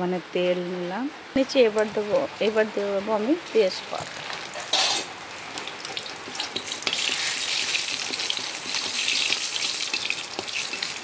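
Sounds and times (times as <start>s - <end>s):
leaves sizzling in hot oil: 1.3s - 11.0s
metal spatula stirring: 3.9s - 11.0s.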